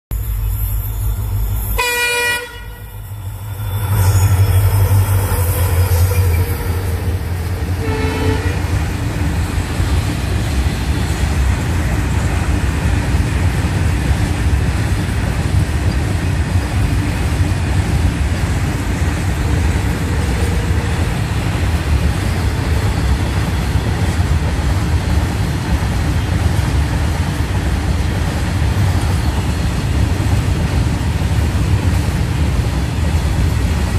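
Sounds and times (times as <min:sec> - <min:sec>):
train wheels rumbling on rail: 0:00.1 - 0:33.9
train horn blast: 0:01.6 - 0:08.9.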